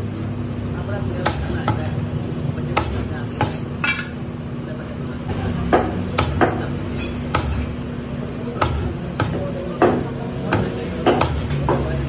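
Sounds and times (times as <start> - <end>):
cleaver chopping meat on wood: 1.1 - 2.0, 2.6 - 3.7, 5.4 - 7.8, 8.5 - 12.0.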